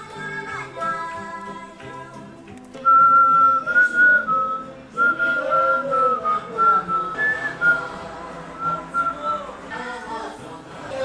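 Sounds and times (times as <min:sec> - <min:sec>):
soft background music: 0:00.0 - 0:11.0
whistled melody: 0:02.8 - 0:08.0, 0:08.6 - 0:09.5.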